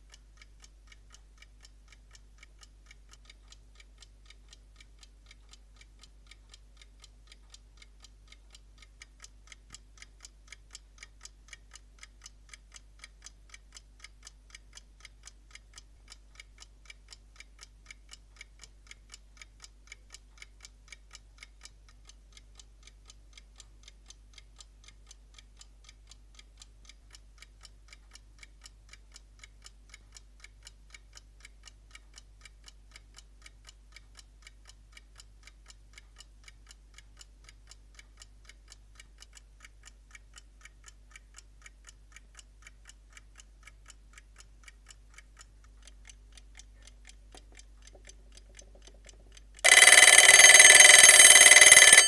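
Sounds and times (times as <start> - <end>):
alarm clock ticking: 49.6 - 52.0.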